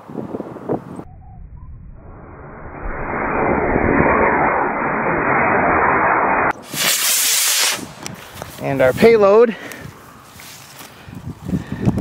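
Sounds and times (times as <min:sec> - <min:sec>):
wind buffeting microphone: 0:00.0 - 0:04.3, 0:11.0 - 0:12.0.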